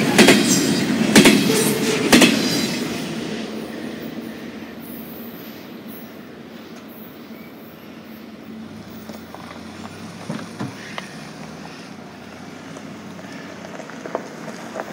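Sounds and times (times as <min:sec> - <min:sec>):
freight train rumbling: 0:00.0 - 0:14.9.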